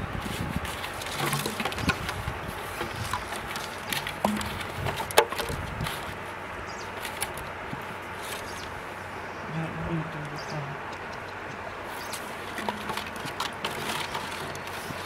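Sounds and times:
plastic bottles clicking and knocking: 0.7s - 6.0s, 12.4s - 15.0s.

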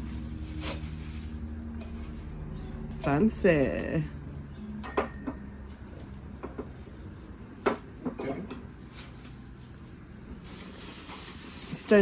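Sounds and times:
plastic wrapping rustling: 0.0s - 3.0s, 5.6s - 12.0s.

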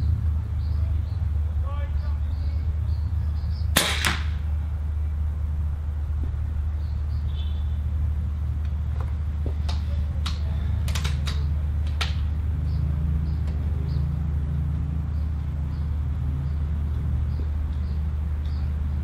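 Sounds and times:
low rumble: 0.0s - 19.0s
air rifle action clicking: 10.2s - 12.2s.

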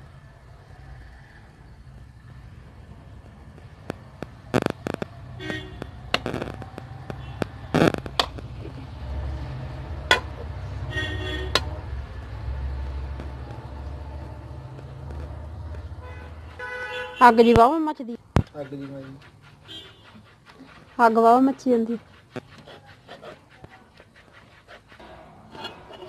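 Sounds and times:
sharp clicks and pops: 3.1s - 8.8s
metal spatula scraping iron pan: 24.4s - 26.0s.

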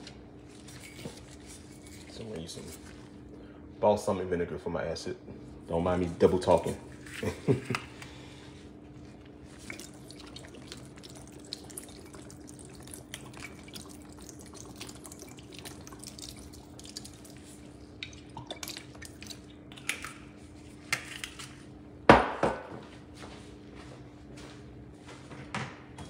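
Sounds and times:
vinegar dripping into metal bowl: 9.7s - 20.0s.

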